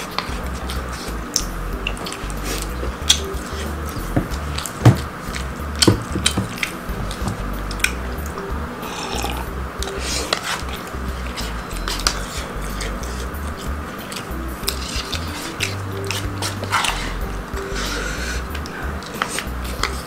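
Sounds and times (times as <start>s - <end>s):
background music: 0.0s - 20.0s
mouth sounds: 0.0s - 20.0s.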